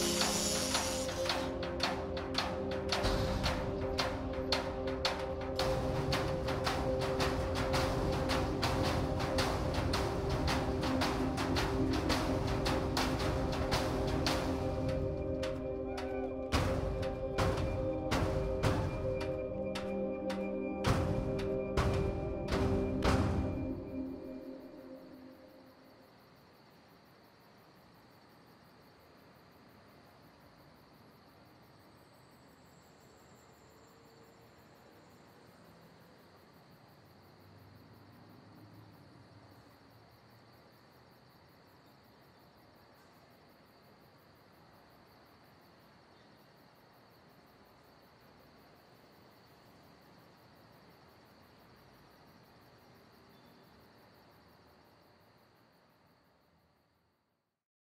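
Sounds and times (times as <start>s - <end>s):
crickets trilling: 0.0s - 57.3s.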